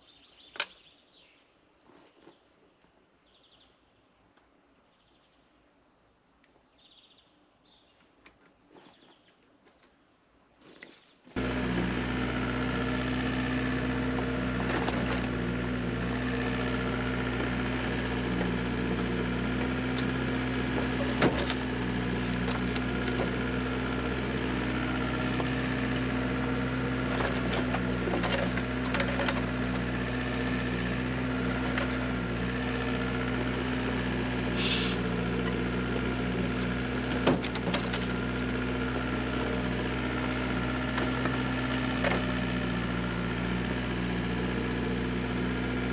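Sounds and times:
diesel engine running: 11.4s - 45.9s
brief hiss: 34.6s - 35.0s.

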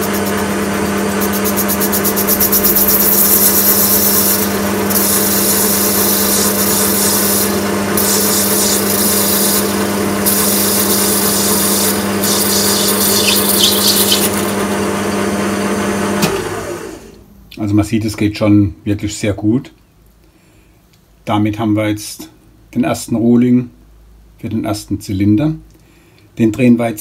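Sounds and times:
lathe humming: 0.0s - 17.2s
hissing scrape of cutting tool: 1.8s - 14.5s.

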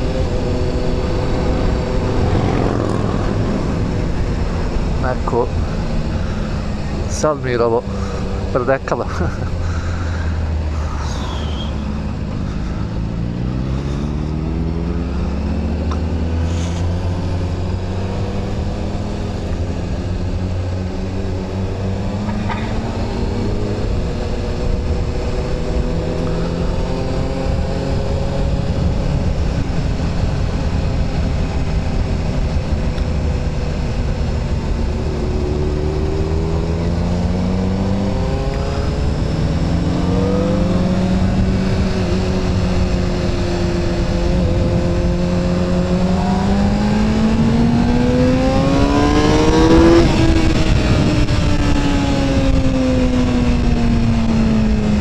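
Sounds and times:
wind rushing: 0.0s - 6.3s
motorcycle engine accelerating: 0.0s - 7.1s, 7.8s - 55.0s.

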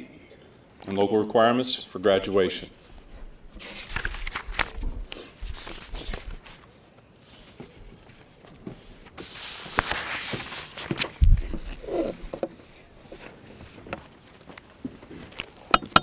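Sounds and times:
papers rustling: 2.8s - 12.3s
wind rumble on microphone: 11.2s - 12.2s.

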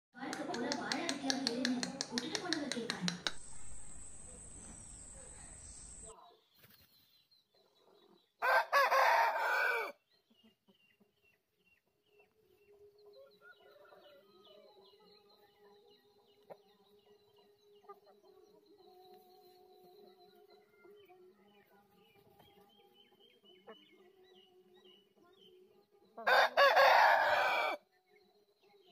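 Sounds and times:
rooster crowing: 8.4s - 10.0s, 26.2s - 27.8s.

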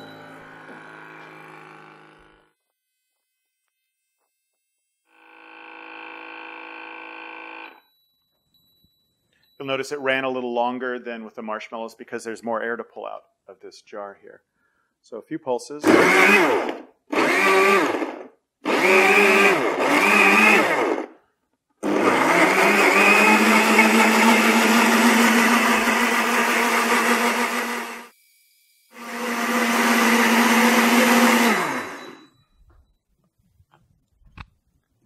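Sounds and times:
blenders running: 0.0s - 2.6s, 5.0s - 7.8s, 15.8s - 21.2s, 21.8s - 32.3s.

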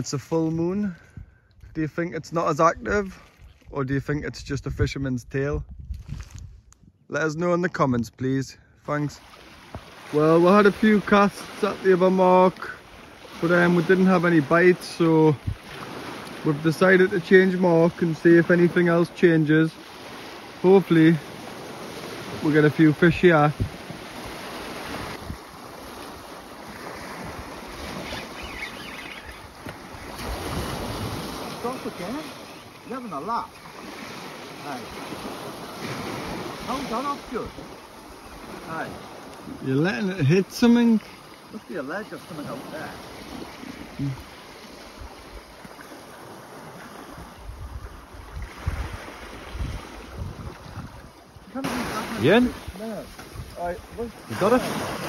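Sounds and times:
wind blowing across microphone: 0.0s - 7.1s, 9.6s - 32.2s, 42.3s - 55.0s
sea washing on shore: 8.9s - 55.0s.

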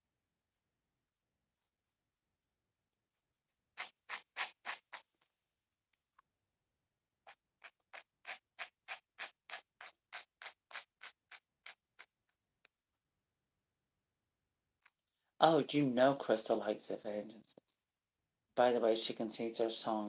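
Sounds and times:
hairbrush stroking through doll hair: 3.8s - 5.1s.

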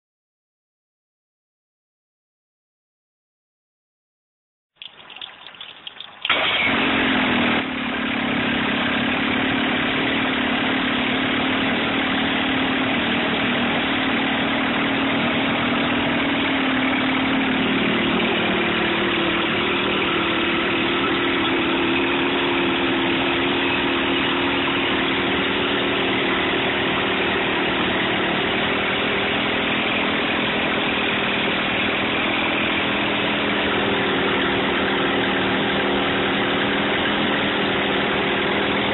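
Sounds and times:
outboard engine cranking and idling: 4.8s - 38.9s.

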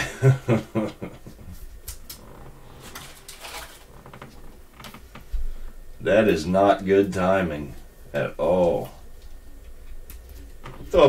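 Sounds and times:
plastic sleeve crinkling: 1.9s - 5.0s.

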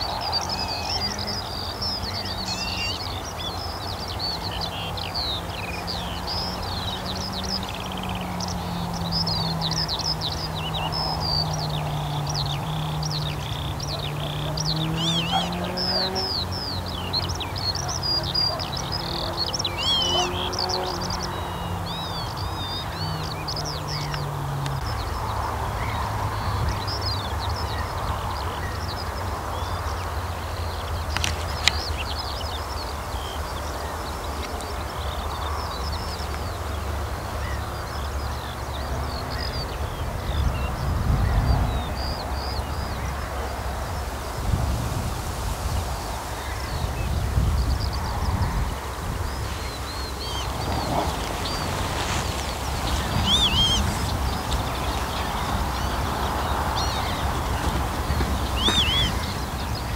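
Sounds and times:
birds chirping and twittering: 0.0s - 59.9s.

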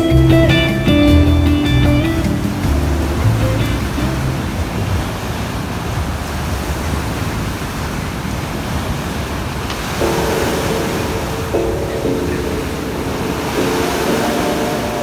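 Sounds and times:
background music: 0.0s - 4.8s, 10.0s - 15.0s
ocean waves breaking: 0.0s - 15.0s.

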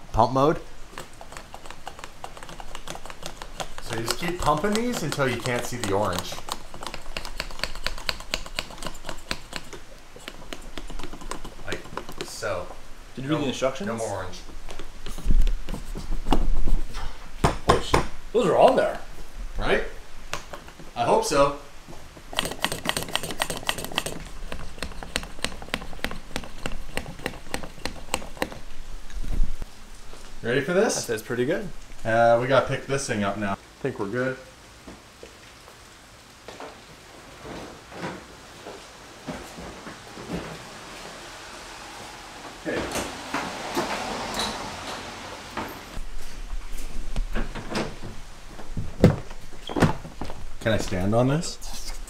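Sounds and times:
hand pump plunger clicking: 22.3s - 28.6s.

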